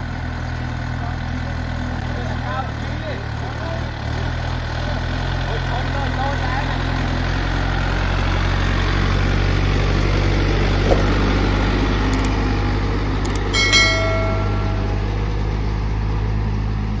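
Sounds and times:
tractor diesel engine running: 0.0s - 17.0s
clicks: 12.1s - 12.4s, 13.2s - 15.2s
short bell-like ding: 13.4s - 15.6s.

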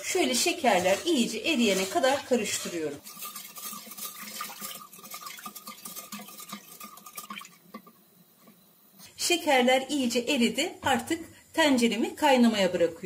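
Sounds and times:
spoon stirring liquid in pot: 0.0s - 8.6s.

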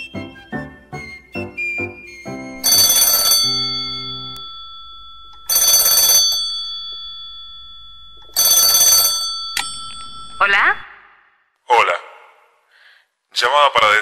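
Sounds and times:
telephone ringing: 2.6s - 11.0s.

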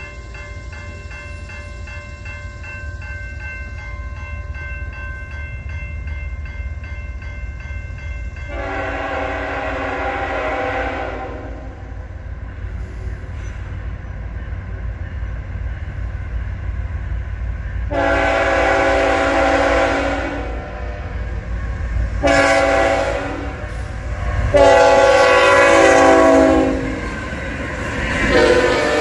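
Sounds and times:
train rumbling: 0.0s - 29.0s
locomotive horn blast: 8.5s - 11.8s, 17.9s - 21.2s, 22.2s - 27.1s, 28.3s - 29.0s.

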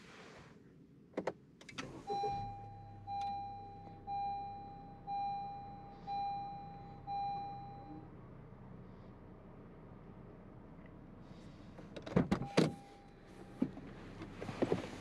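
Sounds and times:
car engine starting and idling: 1.2s - 15.0s
dashboard warning chime: 2.1s - 8.0s, 12.4s - 13.6s.

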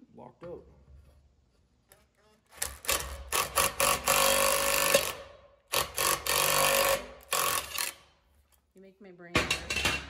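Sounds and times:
power tool driving a screw: 2.5s - 8.1s.

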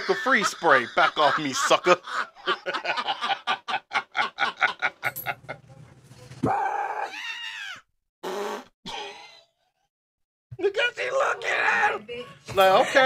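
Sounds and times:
man laughing hard: 0.0s - 5.0s.

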